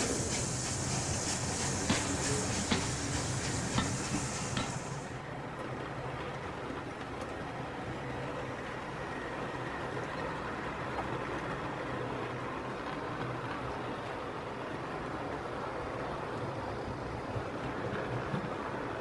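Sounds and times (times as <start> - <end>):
high hiss: 0.0 - 5.2
model train rolling rumble: 0.0 - 19.0.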